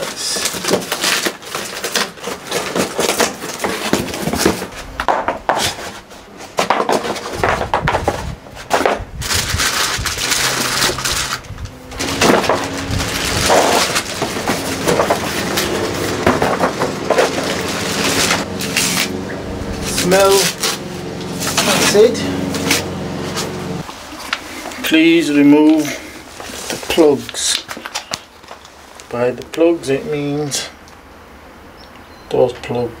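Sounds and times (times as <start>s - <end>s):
scissors cutting packing tape: 0.0s - 4.6s, 9.3s - 19.2s, 19.8s - 20.8s
plastic bag crinkling: 0.0s - 5.0s, 6.9s - 29.1s
cardboard packing rustling and knocking: 0.0s - 24.1s.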